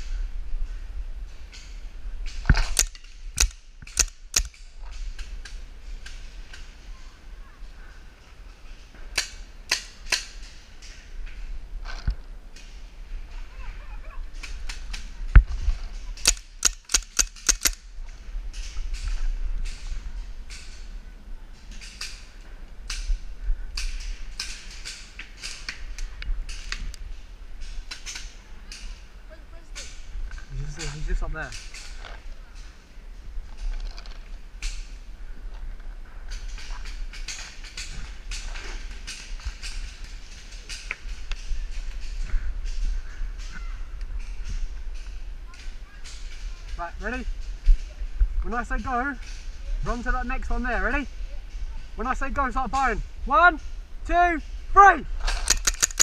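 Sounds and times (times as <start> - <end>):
paintball markers firing: 2.5 - 4.6, 16.2 - 17.8.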